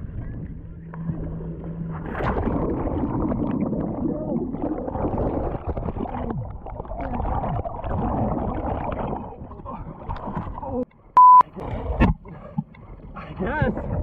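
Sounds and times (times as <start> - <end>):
underwater churning bubbles: 0.0 - 10.9.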